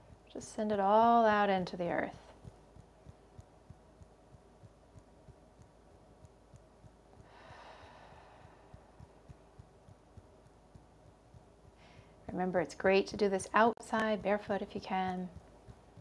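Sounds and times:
fingertips tapping on chest: 0:00.0 - 0:16.0
long exhale: 0:07.3 - 0:08.7.

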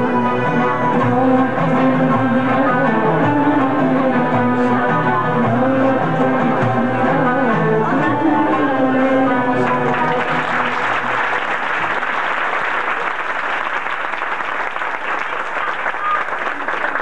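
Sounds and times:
song ending: 0:00.0 - 0:11.9
audience applauding: 0:09.6 - 0:17.0.

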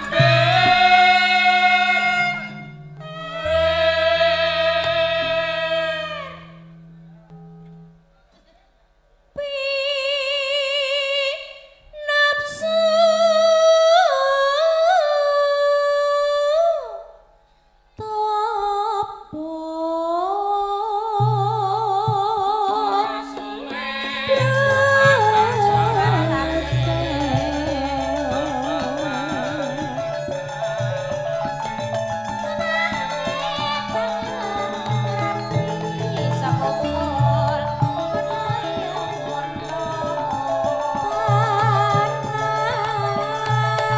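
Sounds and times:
woman singing long held notes: 0:00.0 - 0:06.6, 0:18.0 - 0:31.0, 0:32.3 - 0:43.9
low accompanying notes: 0:00.0 - 0:08.3, 0:21.4 - 0:43.9.

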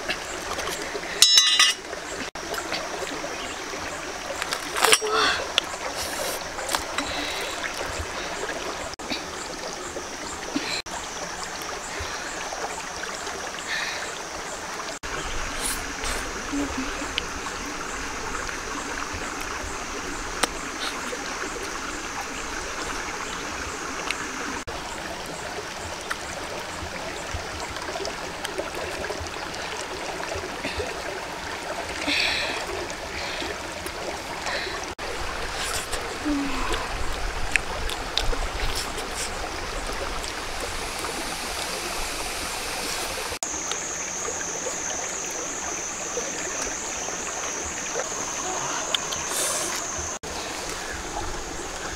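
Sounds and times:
stream rushing over rocks: 0:00.0 - 0:51.9
thin high steady tone: 0:01.2 - 0:01.8.

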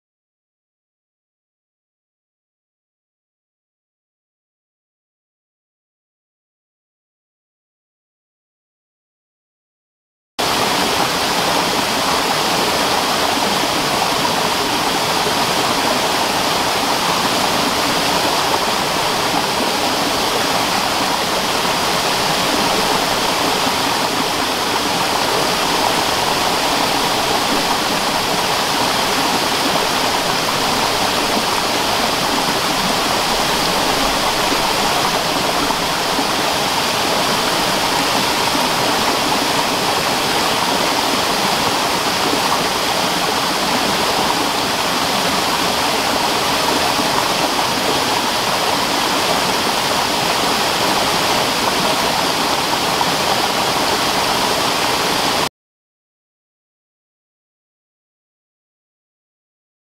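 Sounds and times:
waterfall rushing over rocks: 0:10.4 - 0:55.5.

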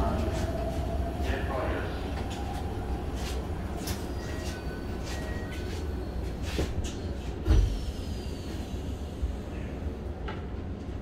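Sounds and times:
train low hum: 0:00.0 - 0:11.0
train doors shutting with thud: 0:06.4 - 0:08.6.

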